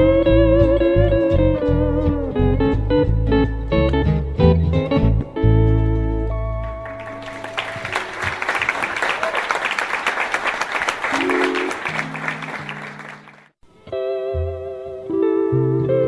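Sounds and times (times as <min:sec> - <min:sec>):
audience applause: 0:06.7 - 0:13.6.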